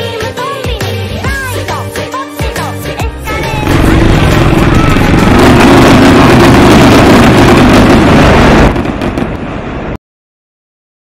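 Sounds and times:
fireworks bursting and crackling: 3.3 - 10.0.

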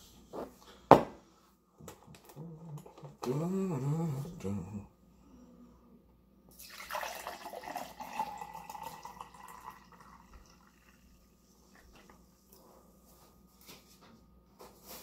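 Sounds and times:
liquid pouring into a glass: 6.5 - 12.0.

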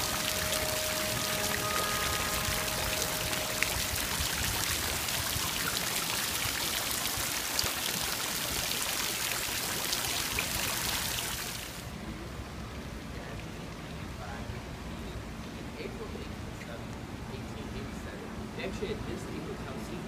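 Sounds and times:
fountain water splashing: 0.0 - 12.0
outdoor background: 0.0 - 20.0.

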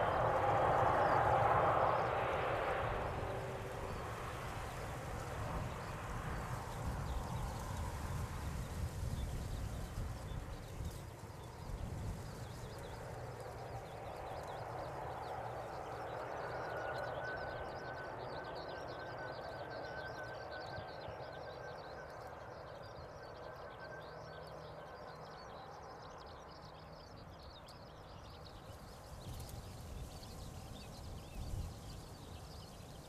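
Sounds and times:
jet engines rushing and whining: 0.0 - 24.7
small birds chirping: 3.2 - 33.0.

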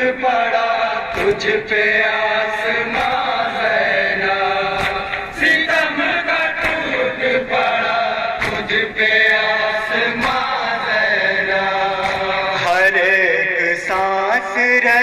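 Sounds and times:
men chanting in chorus: 0.0 - 15.0
hands slapping chests: 1.0 - 7.6, 8.3 - 9.5, 10.1 - 13.0.

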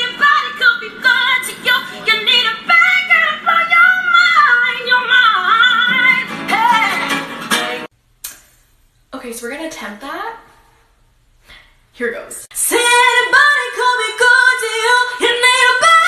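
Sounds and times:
woman singing: 0.0 - 7.9, 12.5 - 16.0
strummed acoustic guitar: 5.5 - 7.9.

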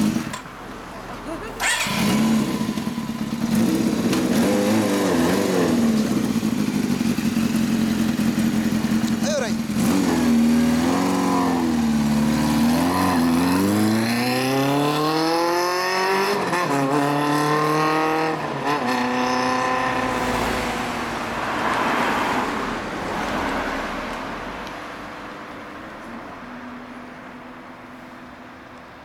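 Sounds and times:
motorcycle accelerating through gears: 1.6 - 21.2.

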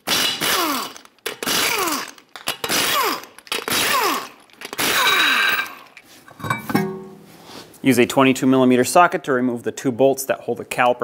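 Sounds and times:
impact wrench spinning lug nuts: 0.1 - 7.0.

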